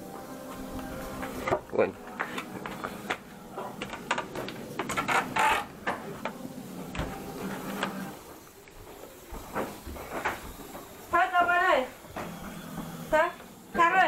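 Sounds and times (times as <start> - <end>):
footsteps on wooden stairs: 0.0 - 13.9
floorboards creaking: 2.2 - 8.1.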